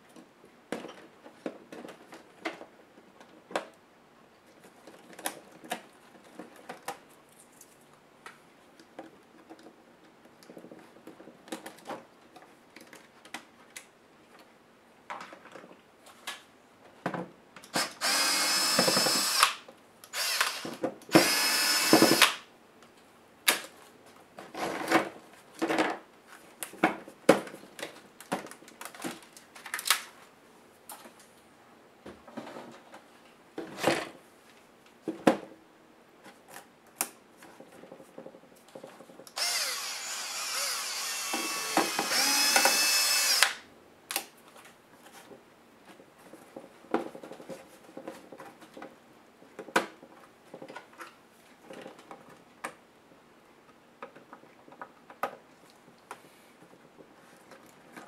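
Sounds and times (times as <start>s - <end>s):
electric screwdriver motor whining: 17.8s - 22.4s, 39.4s - 43.6s.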